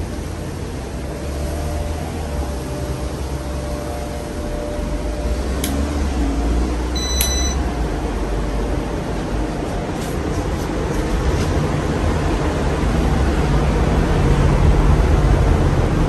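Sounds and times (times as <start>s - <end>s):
ceiling fan running: 0.0s - 16.0s
short high beep: 7.0s - 7.6s.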